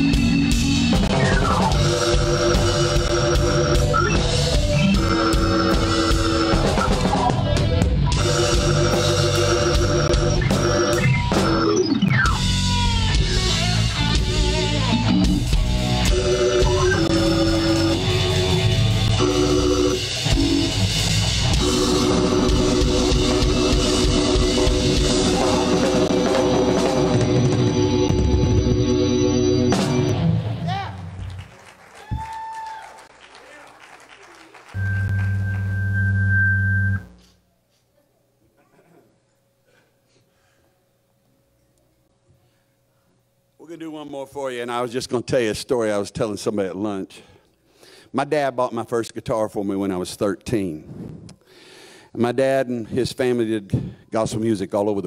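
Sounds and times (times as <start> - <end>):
drum kit: 0.0 - 31.0
electric guitar lead notes: 0.0 - 31.2, 34.8 - 37.2
bass guitar: 0.0 - 31.3, 34.8 - 37.3.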